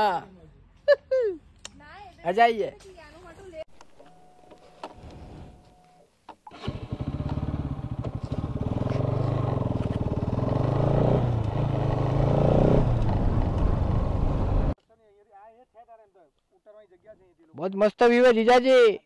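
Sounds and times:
motorcycle engine running: 6.5s - 14.8s.

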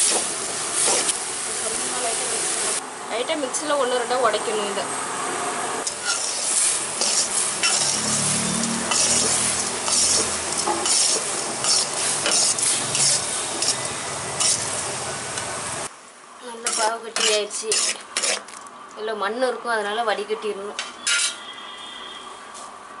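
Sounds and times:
metal ladle scraping pan: 5.8s - 14.7s, 16.6s - 18.5s, 21.0s - 21.5s.

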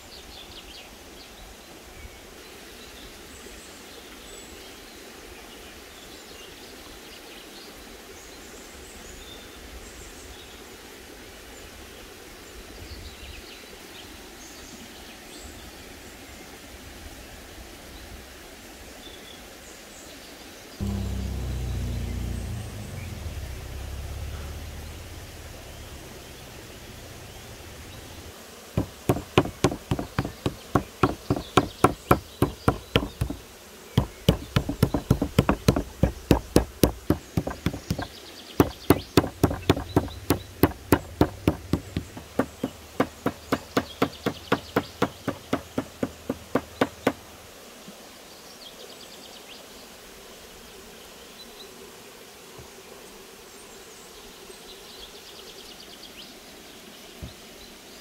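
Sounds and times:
wooden mallet pounding on chopping board: 28.8s - 33.4s, 34.0s - 47.2s.

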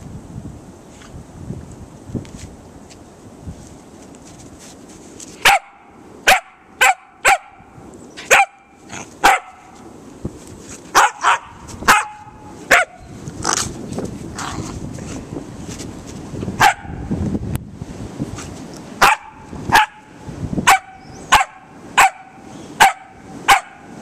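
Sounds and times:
puppy barking: 5.4s - 7.7s, 8.3s - 9.8s, 10.9s - 13.0s, 16.6s - 17.0s, 19.0s - 20.1s, 20.7s - 23.9s.

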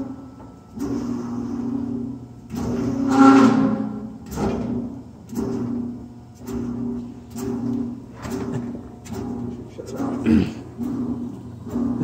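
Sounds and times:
blower motor humming: 0.0s - 12.0s.

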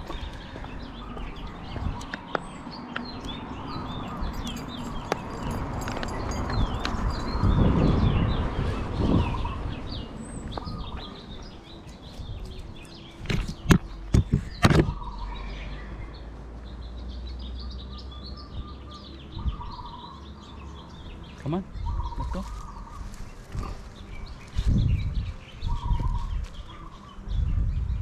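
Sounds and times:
outdoor background noise: 0.0s - 28.0s
small birds chirping: 0.0s - 28.0s
sharp clicks and knocks: 13.2s - 15.0s.

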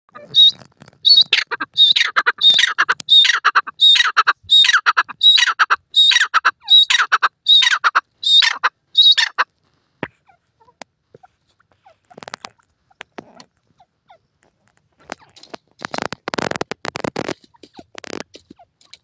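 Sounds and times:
francolin calling: 0.1s - 9.4s.

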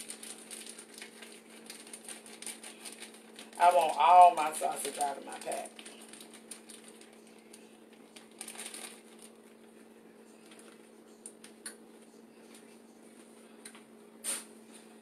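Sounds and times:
plastic wrapper crinkling: 0.0s - 9.6s, 10.4s - 11.6s.

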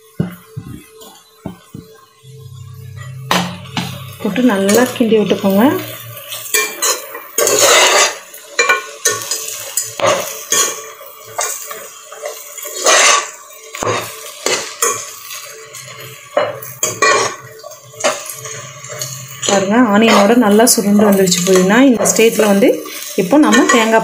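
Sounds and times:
metal spatula scraping pot: 3.8s - 9.5s, 12.7s - 13.3s.

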